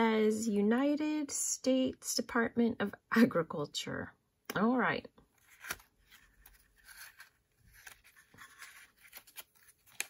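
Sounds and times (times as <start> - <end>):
jewelry box handling scraping: 5.4 - 10.0.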